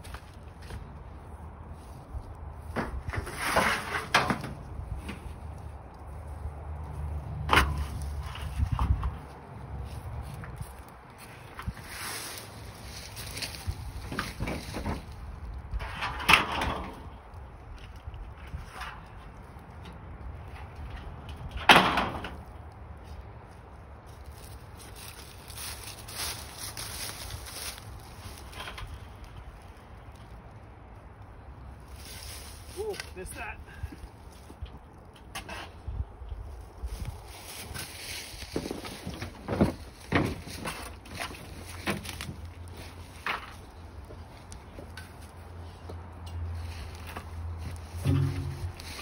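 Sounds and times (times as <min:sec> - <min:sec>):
low outdoor rumble: 0:00.0 - 0:49.0
low steady rumble: 0:47.7 - 0:49.0
metal roofing sheet clattering: 0:47.9 - 0:49.0
loud bang: 0:48.0 - 0:49.0
sharp metal clank: 0:48.0 - 0:49.0.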